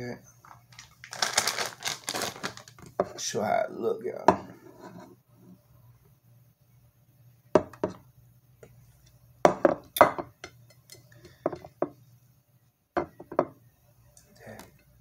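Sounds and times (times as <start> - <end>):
plate knocking and clinking: 4.3 - 5.0, 9.5 - 10.9.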